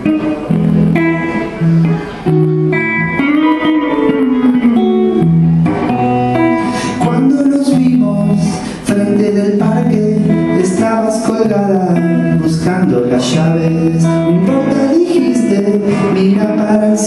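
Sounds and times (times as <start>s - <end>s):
guitar strummed: 0.0s - 17.0s
man singing: 6.6s - 17.0s.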